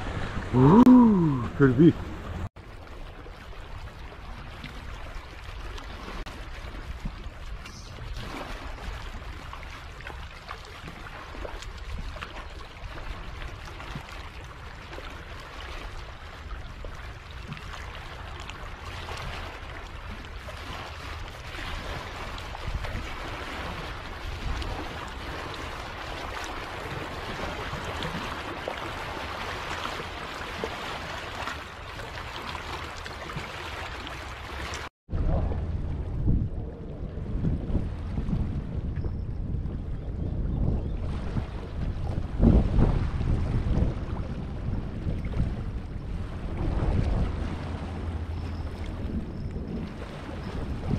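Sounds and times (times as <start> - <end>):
waves splashing over rock: 0.0 - 2.5
constant low rumble: 34.1 - 50.9.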